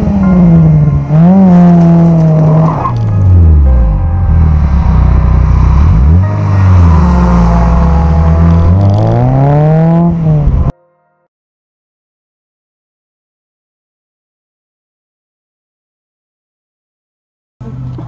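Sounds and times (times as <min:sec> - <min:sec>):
car engine on race track: 0:00.0 - 0:10.7, 0:17.6 - 0:18.0.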